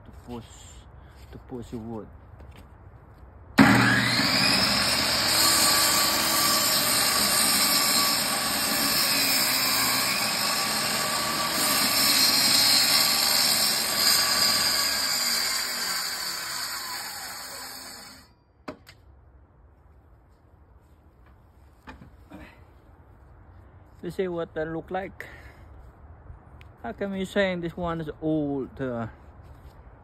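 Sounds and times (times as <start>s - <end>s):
table saw ripping wood: 3.6s - 18.3s.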